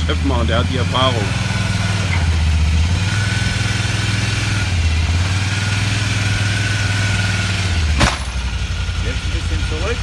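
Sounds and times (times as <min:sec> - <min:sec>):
quad engine running low: 0:00.0 - 0:10.0
metallic clunk of trailer bed: 0:08.0 - 0:08.6.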